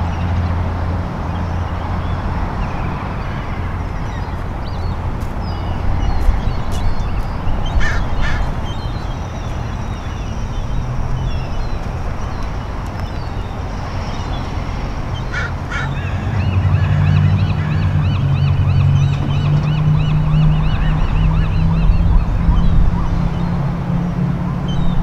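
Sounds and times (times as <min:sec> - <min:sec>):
wind rumbling on microphone: 0:00.0 - 0:25.0.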